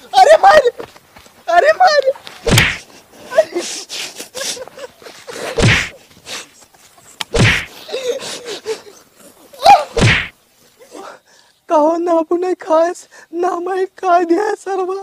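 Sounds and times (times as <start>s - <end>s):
wooden stick whacks: 2.5s - 2.8s, 5.6s - 5.9s, 7.2s - 7.7s, 10.0s - 10.3s.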